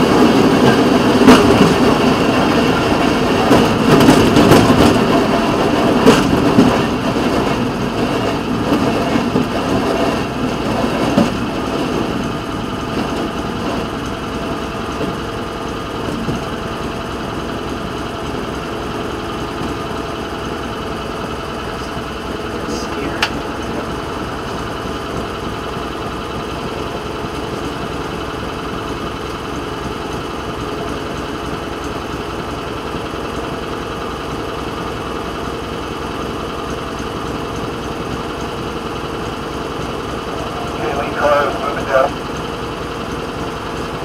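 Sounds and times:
wheels clacking over rail joints: 0.0s - 40.8s
small rail speeder engine: 0.0s - 44.0s.

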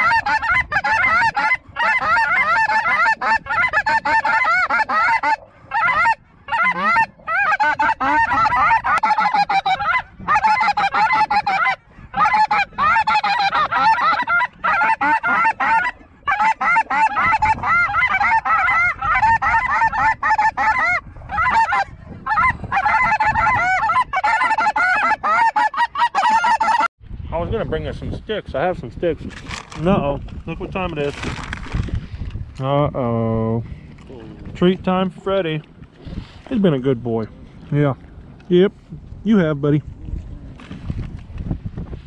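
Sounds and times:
geese honking: 0.0s - 26.9s.

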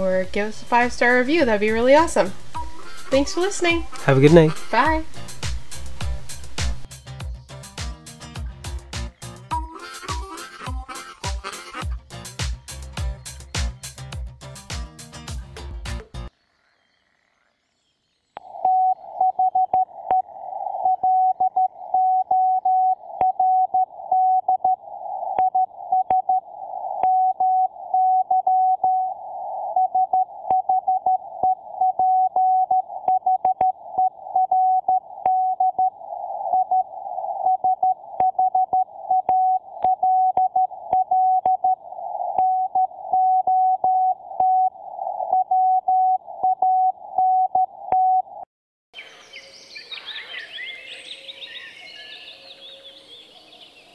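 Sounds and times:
morse code beeping: 0.0s - 6.9s.

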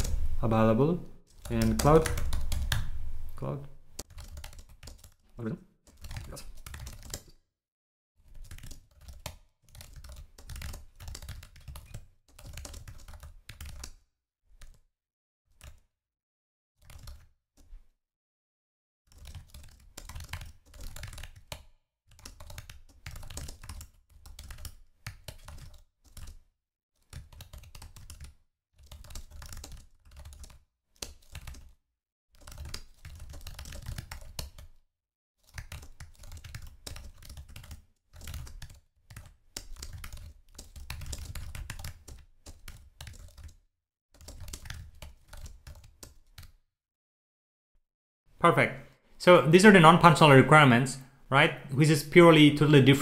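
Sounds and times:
typing on computer keyboard: 1.3s - 3.0s, 4.0s - 5.2s, 5.8s - 7.4s, 8.2s - 14.0s, 14.6s - 14.8s, 15.5s - 15.9s, 16.8s - 17.7s, 19.1s - 31.8s, 32.4s - 34.8s, 35.4s - 46.6s.

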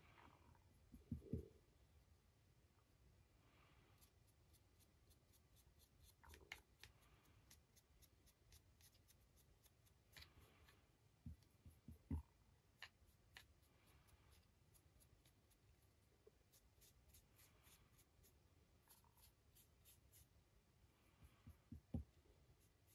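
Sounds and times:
paintbrush clicks and taps: 6.1s - 7.0s.

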